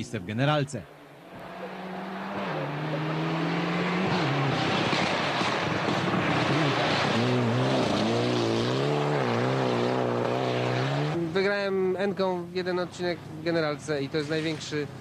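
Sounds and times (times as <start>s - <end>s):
rally car engine revving: 1.2s - 11.5s.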